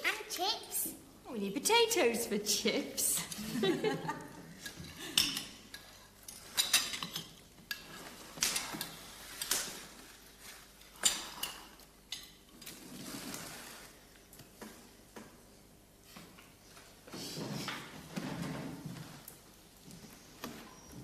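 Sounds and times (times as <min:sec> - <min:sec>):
cutlery and crockery clinking: 0:04.6 - 0:09.6.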